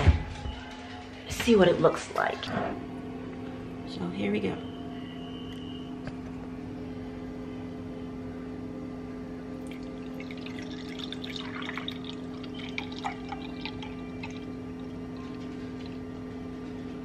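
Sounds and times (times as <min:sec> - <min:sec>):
juice pouring into glass: 0:09.6 - 0:16.1.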